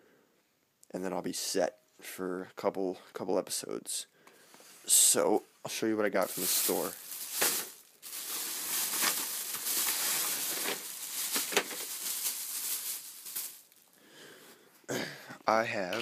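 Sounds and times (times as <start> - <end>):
plastic bag rustling: 6.1 - 14.0.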